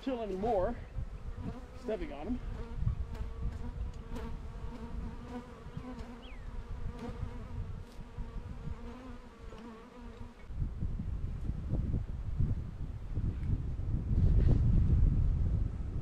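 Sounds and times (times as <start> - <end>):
wind on microphone: 0.4 - 9.3, 10.2 - 16.0
honeybees buzzing: 1.2 - 10.5.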